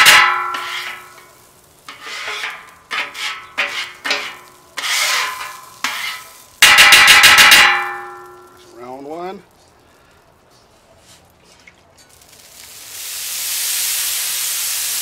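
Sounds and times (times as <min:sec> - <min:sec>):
metal scraper scraping griddle: 0:00.0 - 0:01.3, 0:01.9 - 0:07.9.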